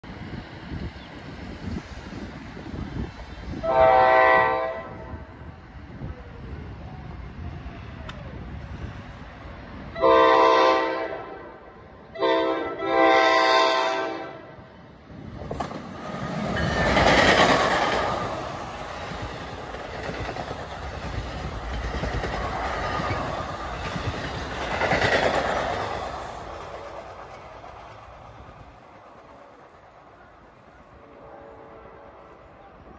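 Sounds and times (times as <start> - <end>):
train wheels rumbling on rails: 0.0 - 32.9
locomotive horn blasts: 3.6 - 5.3, 10.0 - 14.6, 31.0 - 32.4.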